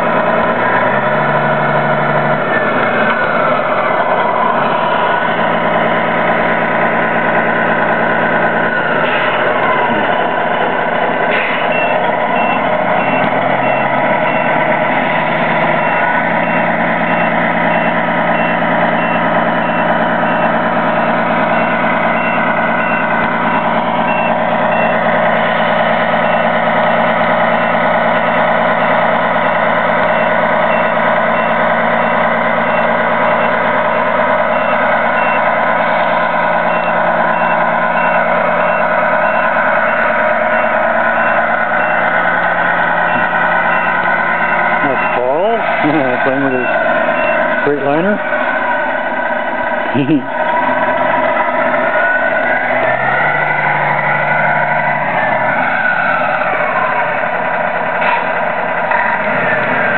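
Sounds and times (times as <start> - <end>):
simulated diesel engine running: 0.0 - 59.9
reversing alarm beeping: 7.3 - 28.5, 29.2 - 48.2.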